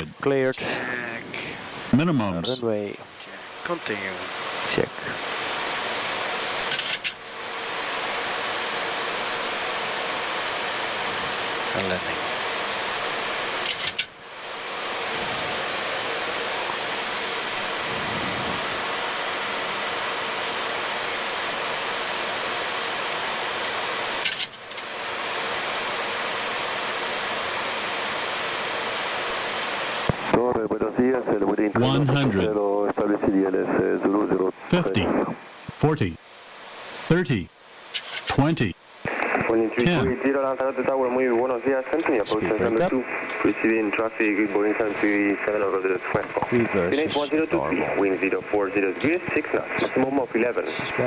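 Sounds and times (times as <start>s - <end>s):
faint steady hum: 0.0s - 51.0s
rushing air noise: 17.5s - 19.4s.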